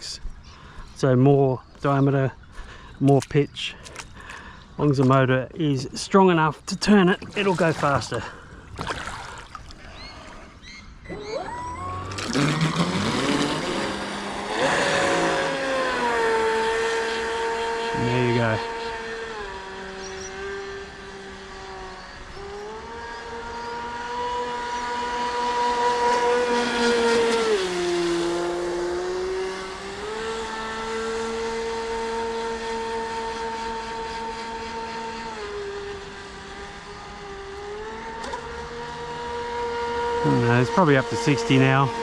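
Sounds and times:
electric motor whining: 10.0 - 42.0.

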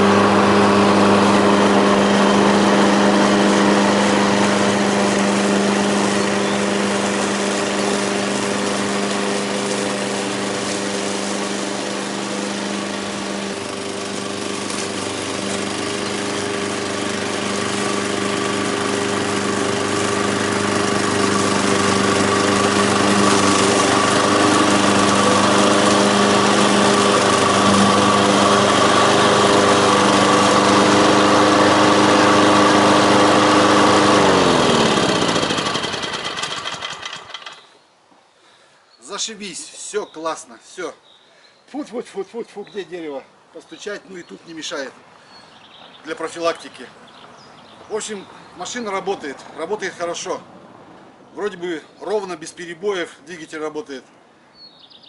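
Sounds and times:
lawn mower engine running: 0.0 - 37.7.

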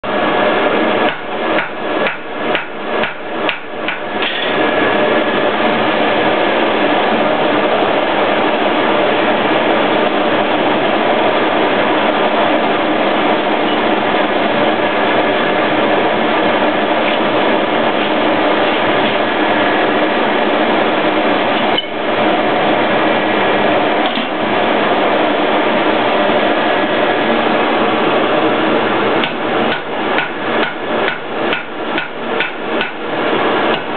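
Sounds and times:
hammer striking iron on anvil: 1.0 - 4.5, 29.2 - 33.0.

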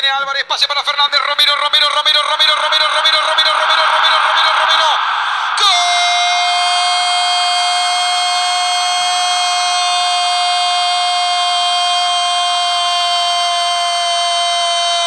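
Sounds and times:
held tone with overtones: 0.8 - 8.8
stadium crowd roaring: 1.5 - 15.0.

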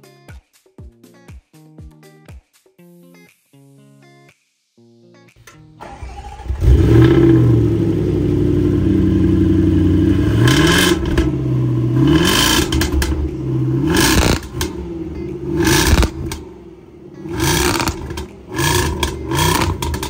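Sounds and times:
engine idling and revving: 5.8 - 20.0.

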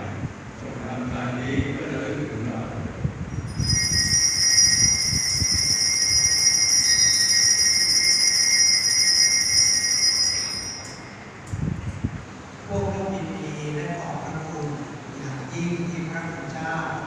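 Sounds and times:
altar bells ringing: 3.5 - 11.4.

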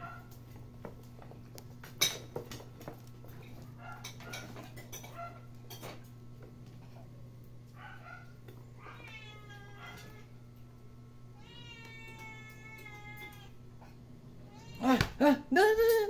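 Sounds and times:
puppy whining: 7.8 - 10.3.

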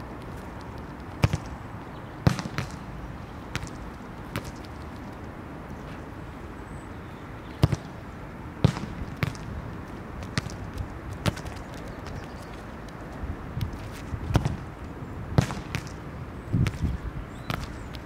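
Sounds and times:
outdoor background noise: 0.0 - 18.0
soccer ball thudding: 0.1 - 5.1, 7.5 - 8.0, 8.6 - 12.5, 13.6 - 18.0.

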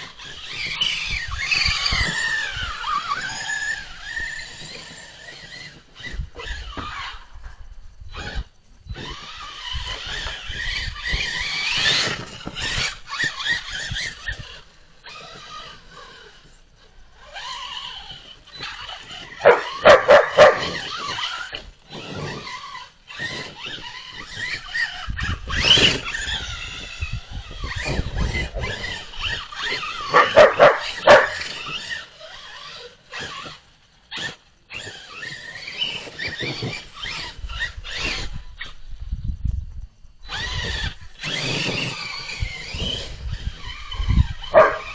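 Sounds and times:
dogs yipping and whining: 0.0 - 7.3, 8.1 - 16.5, 17.2 - 38.8, 40.2 - 44.9
dogs whining: 17.4 - 22.5, 27.5 - 32.0, 43.6 - 44.9
loud dog barks: 19.4 - 20.8, 30.1 - 31.4, 44.5 - 44.9.

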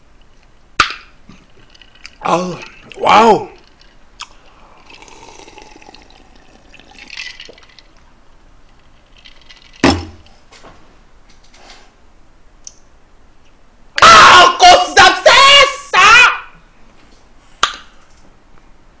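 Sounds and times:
person exclaiming: 2.2 - 3.6, 14.0 - 16.6
sipping a drink: 3.6 - 8.0.

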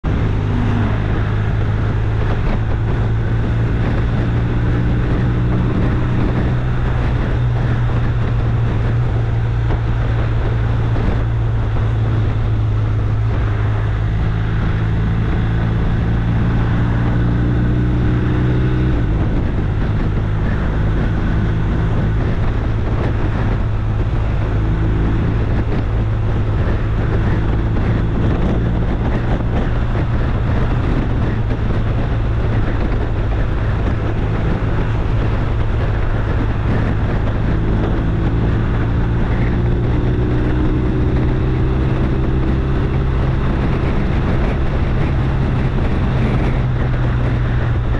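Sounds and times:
wind noise: 0.0 - 47.9.

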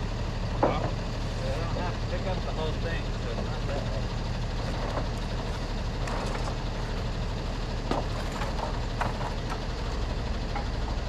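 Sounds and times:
truck engine idling: 0.0 - 11.0
wooden trusses knocking: 7.8 - 9.7.

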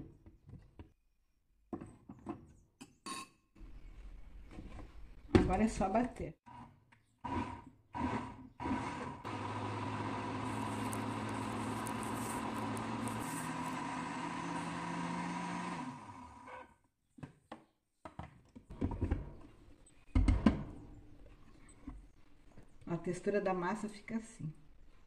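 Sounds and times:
blender motor running: 7.3 - 16.6.

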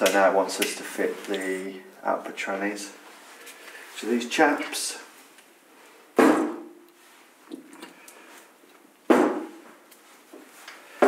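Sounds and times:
faint handling noise: 0.0 - 1.8.

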